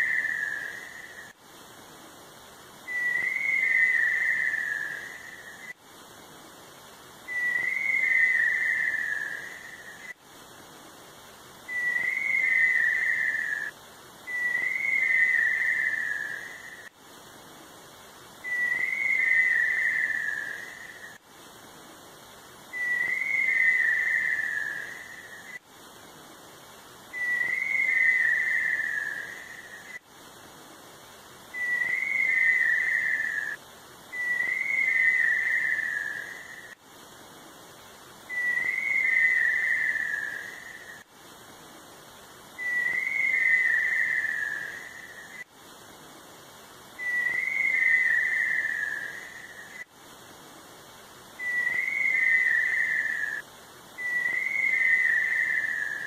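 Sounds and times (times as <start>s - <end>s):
tinamou wavering whistles: 0.0s - 1.4s, 2.9s - 5.8s, 7.3s - 10.2s, 11.7s - 16.9s, 18.4s - 21.2s, 22.7s - 25.6s, 27.1s - 30.0s, 31.5s - 36.8s, 38.3s - 41.1s, 42.6s - 45.5s, 47.0s - 49.9s, 51.4s - 56.0s.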